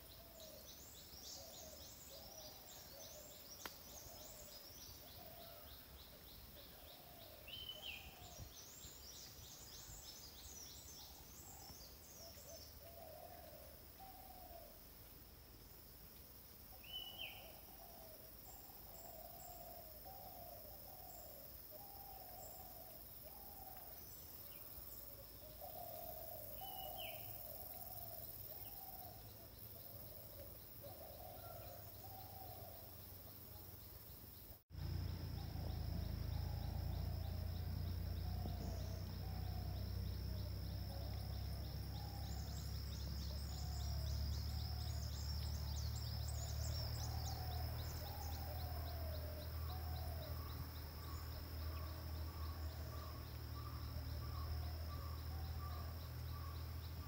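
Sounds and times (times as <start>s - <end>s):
high insect drone: 0.0s - 57.0s
bird hooting calls: 25.1s - 32.9s, 35.0s - 56.6s.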